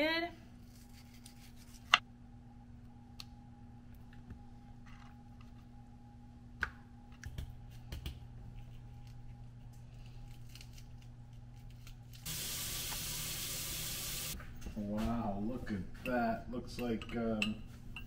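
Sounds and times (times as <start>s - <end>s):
steady low hum: 0.2s - 12.2s
steady hiss: 12.3s - 14.4s.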